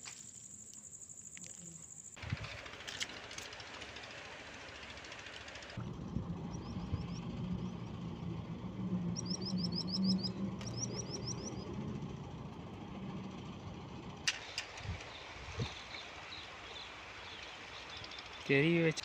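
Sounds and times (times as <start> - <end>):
bulldozer diesel engine running: 2.2 - 19.0
small bird chirping: 6.4 - 8.1, 9.1 - 11.8, 15.1 - 18.5.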